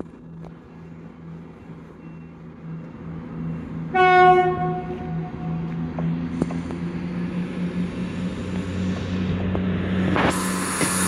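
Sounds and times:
faint high whine: 0.0 - 4.0
diesel engines humming: 0.0 - 11.0
train horn blast: 3.9 - 5.6.

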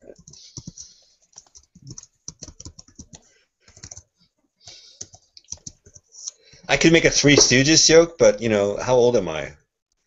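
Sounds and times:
computer keyboard typing: 0.1 - 6.1.

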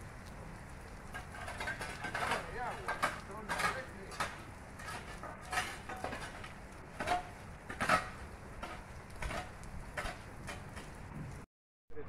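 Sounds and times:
heavy rain hissing: 0.0 - 11.4.

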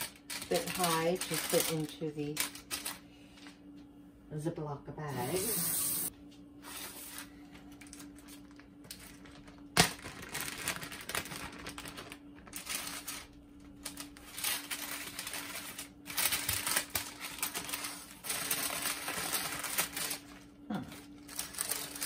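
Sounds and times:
plastic bag crinkling: 0.0 - 3.0, 7.8 - 22.0.

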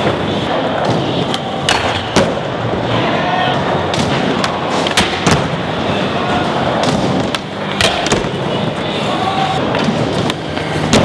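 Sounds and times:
skateboard wheels rolling: 0.0 - 11.0.

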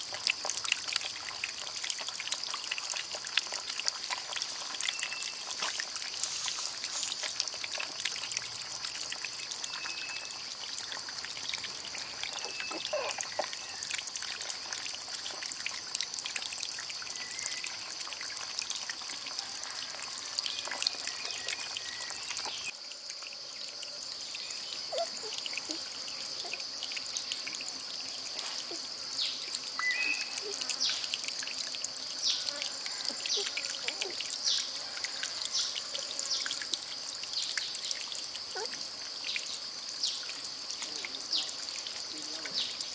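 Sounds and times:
steady high-pitched hiss: 4.5 - 7.9.

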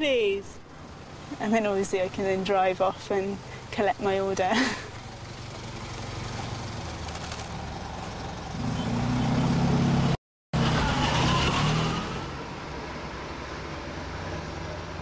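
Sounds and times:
small car engine pulling away: 5.0 - 12.4.

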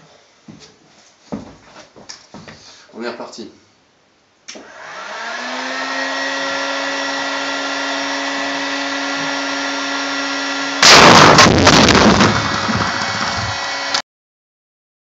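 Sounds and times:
heat gun fan whine: 4.5 - 14.0
plastic keg bursting bang: 10.8 - 13.6
loud rushing noise: 10.8 - 13.9.

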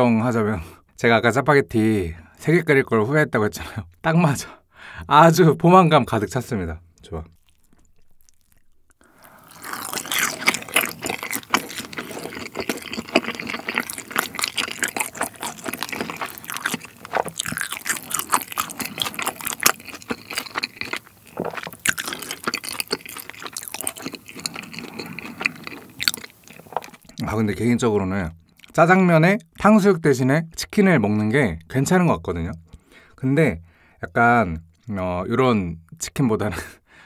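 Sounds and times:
chewing with crackles and wet clicks: 7.0 - 27.4, 28.4 - 28.8.

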